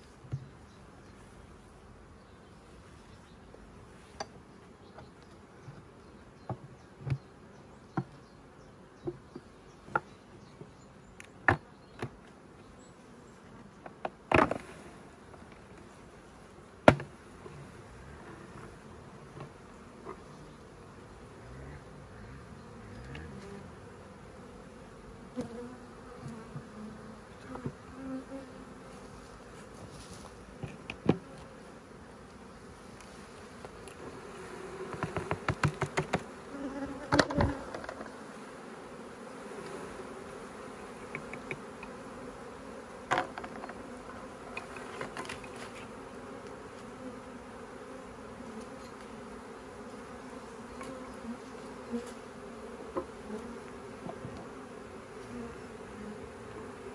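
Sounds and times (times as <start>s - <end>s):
bees buzzing: 4.9s - 56.9s.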